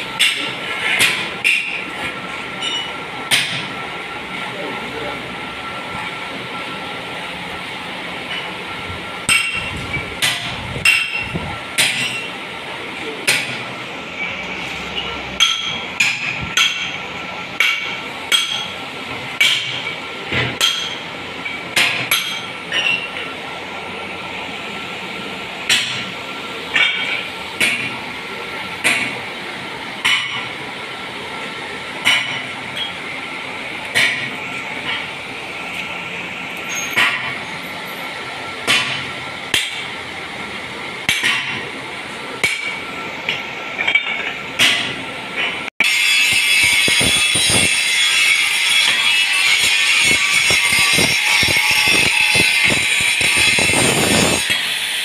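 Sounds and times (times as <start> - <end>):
hammer striking metal: 0.2 - 3.8, 9.2 - 12.4, 13.2 - 13.7, 15.0 - 17.0, 17.6 - 23.3, 25.6 - 28.0, 28.8 - 29.2, 30.0 - 30.6, 32.0 - 33.1, 33.8 - 35.1, 36.7 - 37.4, 38.6 - 40.0, 41.0 - 41.7, 42.4 - 54.8.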